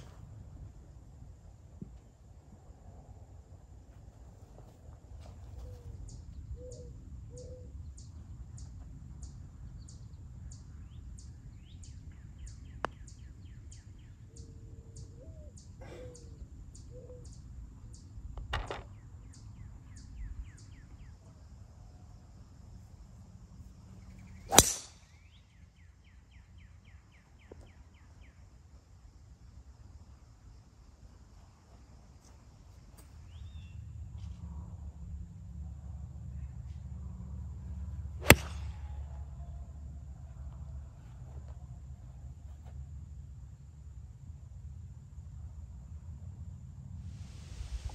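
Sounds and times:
bird calls and trills: 5.2s - 18.1s
club tapping golf ball: 24.5s - 24.9s, 38.2s - 38.7s
driver cracking golf ball: 24.5s - 25.0s, 38.2s - 38.8s.

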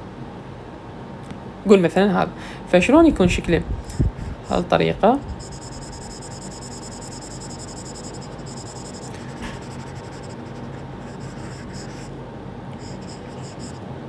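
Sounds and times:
stylus scribbling on glass screen: 5.4s - 12.1s, 12.8s - 13.8s.

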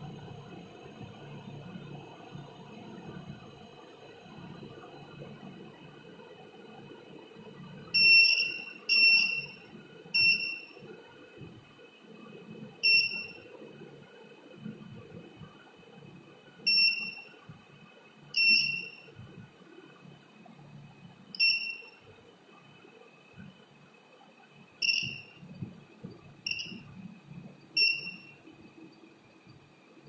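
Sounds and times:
piezo buzzer beeping: 8.0s - 9.6s, 10.2s - 10.7s, 12.8s - 13.4s, 16.7s - 17.3s, 18.4s - 19.1s, 21.4s - 22.0s, 24.8s - 25.3s, 26.5s - 26.8s, 27.8s - 28.3s.

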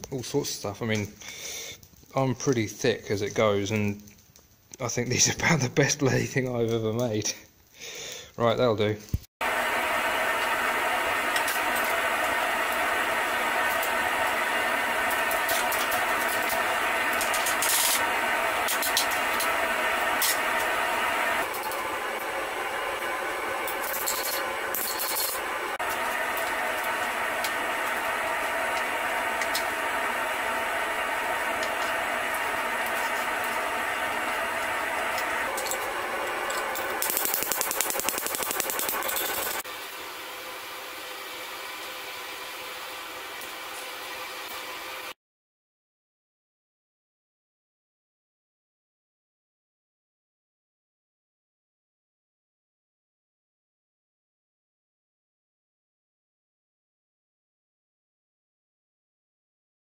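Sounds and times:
forge fire rushing: 9.4s - 39.6s
steady mechanical hum: 9.4s - 45.2s.

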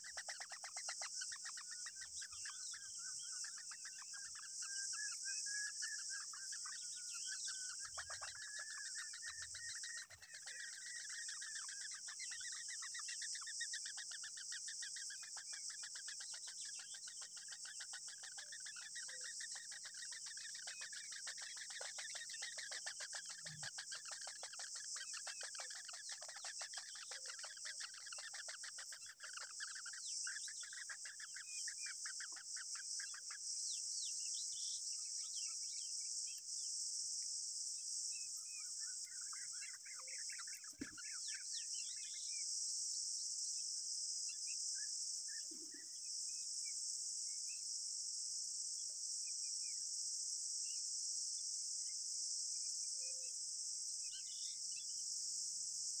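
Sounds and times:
nestlings begging calls: 0.0s - 33.4s
bird chirps: 0.0s - 36.9s, 38.0s - 42.5s, 44.3s - 47.6s.

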